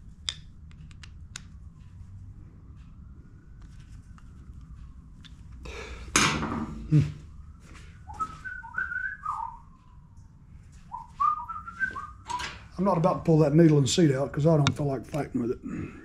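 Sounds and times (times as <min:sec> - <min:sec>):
man whistling a tune: 0:08.0 - 0:09.8, 0:10.9 - 0:12.5.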